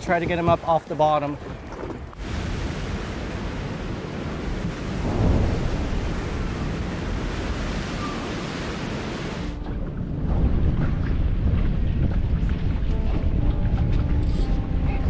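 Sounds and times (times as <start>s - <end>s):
ocean surf breaking: 2.2s - 9.6s.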